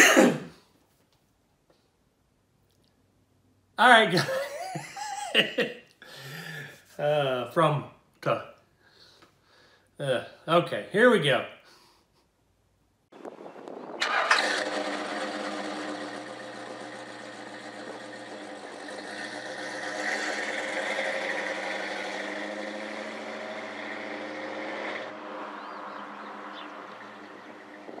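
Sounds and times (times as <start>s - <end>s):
car engine starting and running: 13.2s - 28.0s.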